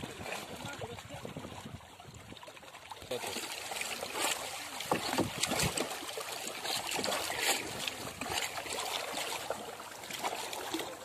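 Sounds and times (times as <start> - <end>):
sharp water splashes: 0.0 - 11.0
water sloshing and trickling: 0.0 - 11.0.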